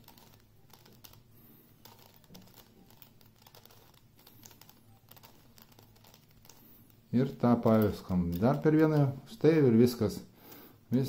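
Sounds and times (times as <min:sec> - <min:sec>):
plastic puzzle clicking: 0:00.0 - 0:06.6, 0:07.6 - 0:09.2.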